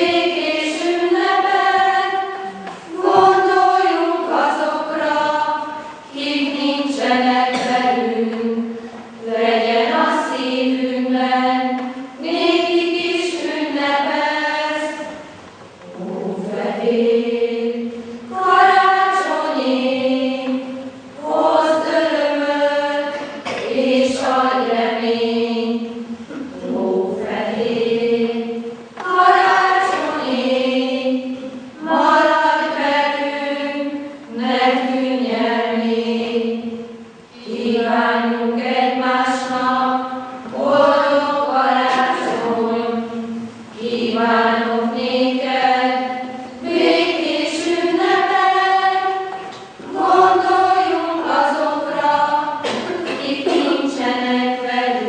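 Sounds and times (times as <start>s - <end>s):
female choir singing: 0.0s - 55.0s.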